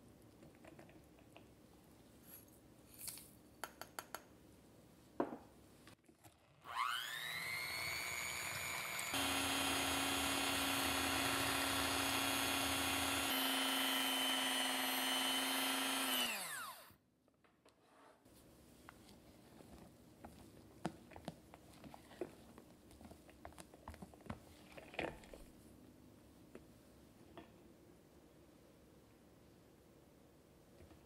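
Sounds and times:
electric hand mixer whining: 6.6 - 17.0.

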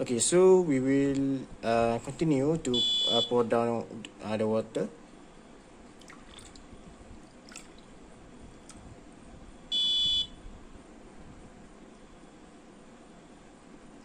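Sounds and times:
high-pitched buzzer beep: 2.8 - 3.4, 9.7 - 10.4
water pouring into bucket: 6.0 - 6.6.

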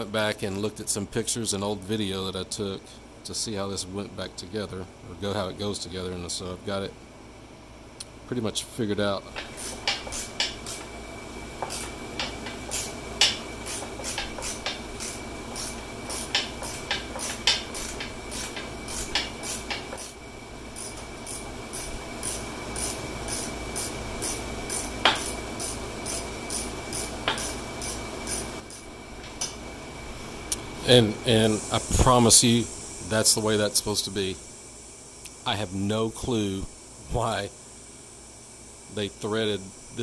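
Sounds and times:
ratchet clicking: 9.4 - 10.9, 11.6 - 20.2, 20.8 - 28.9.

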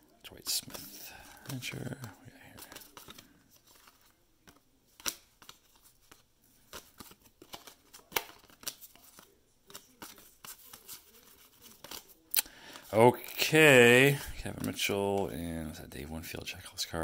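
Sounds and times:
cards snapping off a stack: 4.5 - 5.8, 6.7 - 12.6.

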